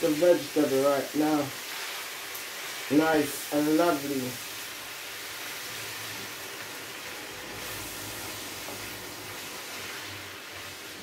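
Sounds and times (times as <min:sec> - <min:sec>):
vegetables sizzling in a frying pan: 0:00.0 - 0:11.0.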